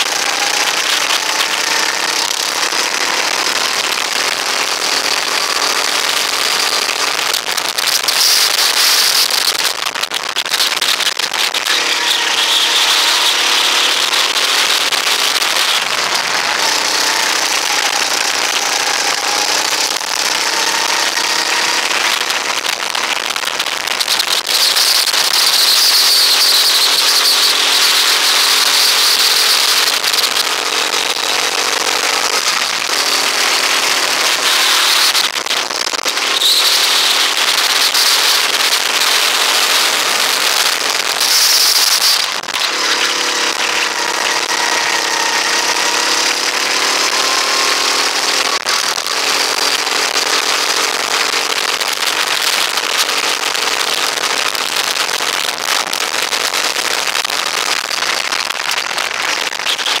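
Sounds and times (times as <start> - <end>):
go-kart engine running hard: 0.0 - 60.0.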